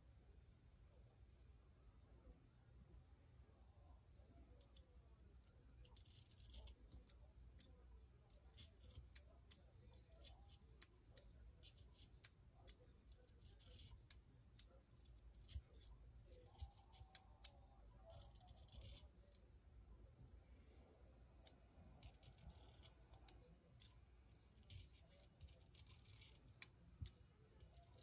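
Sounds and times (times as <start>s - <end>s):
knife blade shaving wood: 24.6s - 26.7s.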